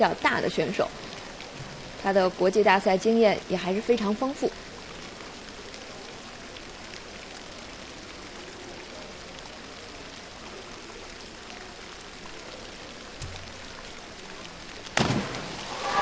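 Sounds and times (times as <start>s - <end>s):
hiss of pool water: 15.1s - 16.0s.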